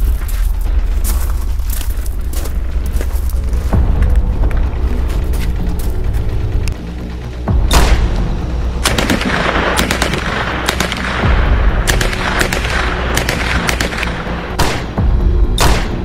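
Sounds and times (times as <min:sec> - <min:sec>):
low rumble: 0:00.0 - 0:16.0
rifle shots: 0:07.7 - 0:08.2, 0:08.8 - 0:15.0, 0:15.6 - 0:16.0.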